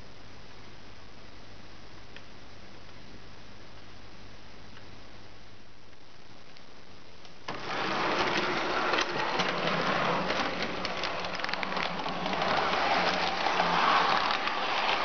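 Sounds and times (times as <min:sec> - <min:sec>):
model train motor hum: 0:07.5 - 0:15.0
train wheels rattling and clicking: 0:07.5 - 0:15.0.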